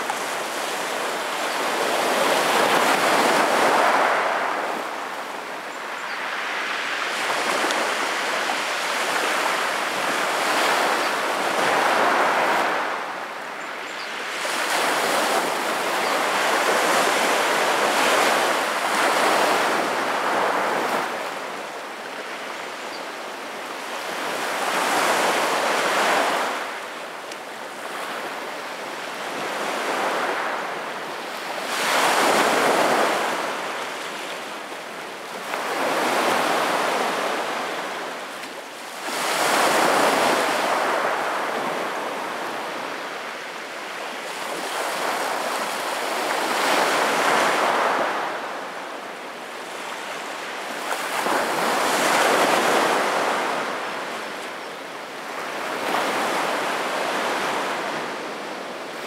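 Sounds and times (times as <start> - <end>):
waves on pebble beach: 0.0 - 13.1, 29.0 - 34.3, 35.2 - 43.4, 44.1 - 48.8, 49.7 - 54.3.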